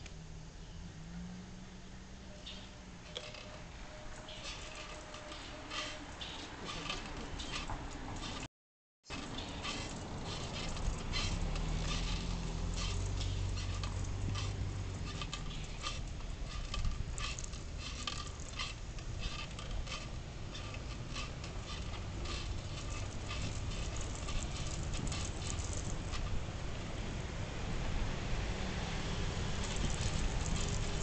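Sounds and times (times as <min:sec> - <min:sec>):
road and wind noise: 0:00.0 - 0:31.0
bike clicks and rattles: 0:02.4 - 0:08.5, 0:09.1 - 0:27.0, 0:29.1 - 0:31.0
car engine humming: 0:09.1 - 0:31.0.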